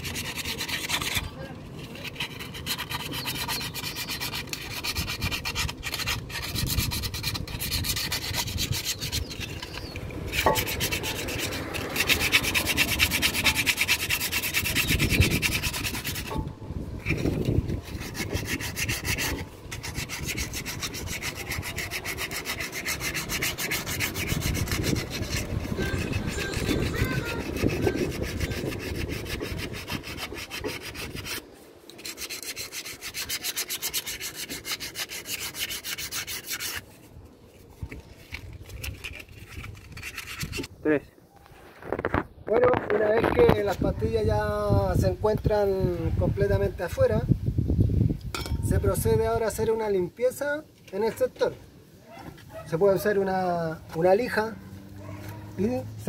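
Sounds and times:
brake pad scraping against metal: 0:00.0 - 0:37.0.

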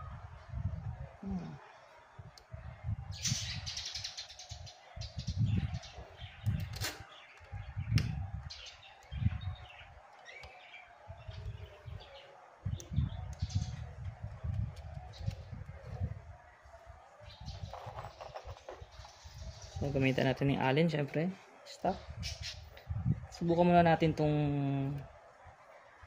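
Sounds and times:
small birds chirping: 0:03.2 - 0:16.1, 0:17.2 - 0:21.0.

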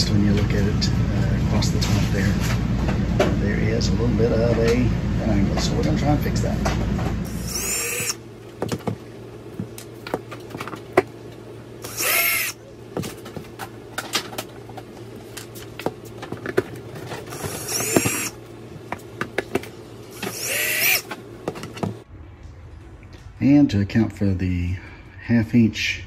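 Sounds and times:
cordless drill whining: 0:07.3 - 0:08.2, 0:11.8 - 0:12.6, 0:17.4 - 0:18.4, 0:20.1 - 0:21.0.

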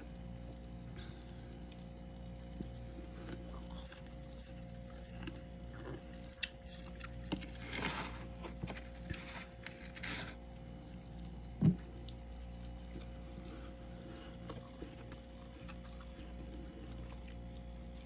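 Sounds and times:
metal spoon scraping frost: 0:06.7 - 0:10.4.

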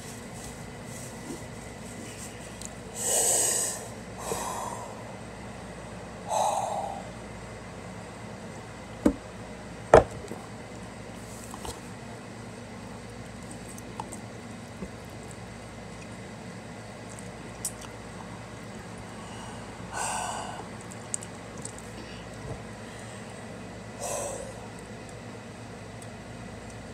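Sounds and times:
loud breath through mouth: 0:02.9 - 0:05.0, 0:24.0 - 0:24.6.

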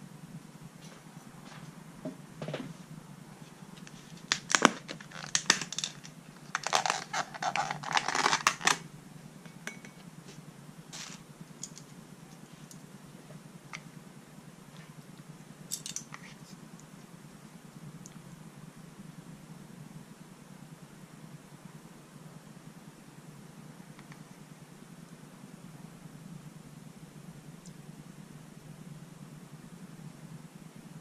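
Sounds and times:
plastic crinkling and crackling: 0:03.8 - 0:08.8.

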